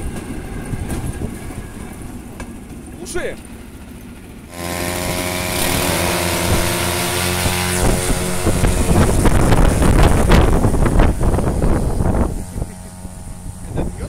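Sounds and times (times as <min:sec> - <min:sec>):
propeller wind buffeting microphone: 0:00.0 - 0:14.0
small engine revving: 0:04.4 - 0:14.0.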